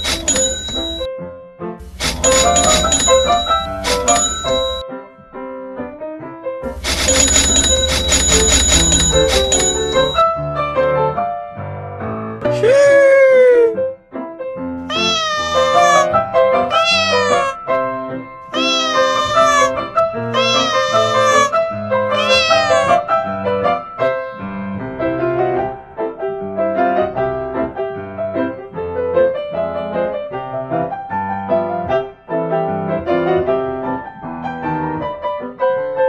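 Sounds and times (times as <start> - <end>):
cat meowing: 0.0 - 1.0, 2.2 - 4.8, 14.8 - 17.8, 18.5 - 23.1
piano melody: 0.0 - 12.6, 13.7 - 36.0.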